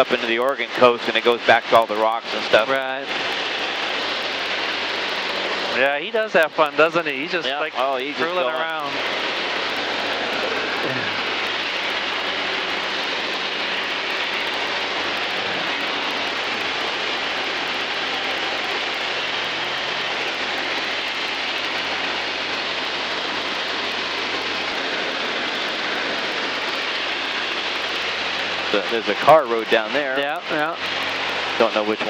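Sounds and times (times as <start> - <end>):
aircraft engine and propeller drone: 0.0 - 32.0
rushing air: 8.1 - 29.0.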